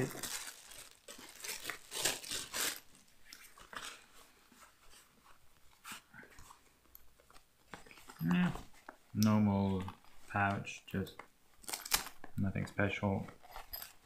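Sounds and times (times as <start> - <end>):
plastic bag crinkling: 0.0 - 4.1.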